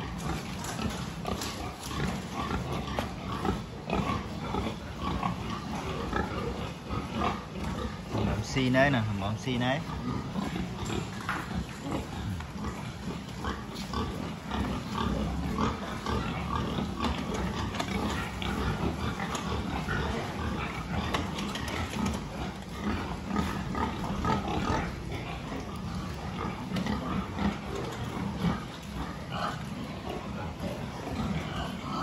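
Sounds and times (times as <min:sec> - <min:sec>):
pigs grunting: 0:00.0 - 0:32.0.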